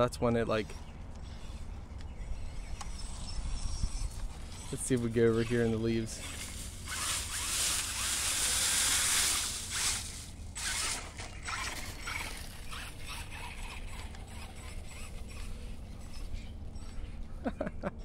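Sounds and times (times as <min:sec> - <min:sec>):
toy truck crackling through dry leaves: 0:02.5 - 0:16.8.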